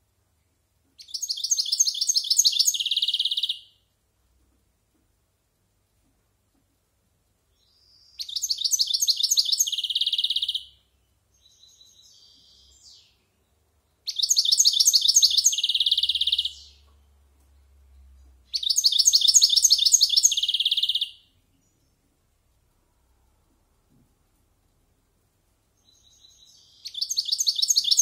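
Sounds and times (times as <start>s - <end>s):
bird twittering: 1.0s - 3.7s, 7.6s - 10.8s, 14.1s - 16.9s, 18.5s - 21.2s, 25.8s - 28.0s
goldfinch singing: 1.0s - 3.7s, 7.6s - 10.8s, 14.0s - 16.9s, 17.6s - 21.9s, 25.8s - 28.0s.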